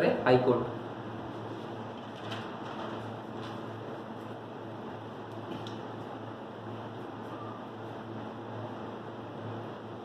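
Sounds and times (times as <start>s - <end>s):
low constant hum: 0.0s - 10.0s.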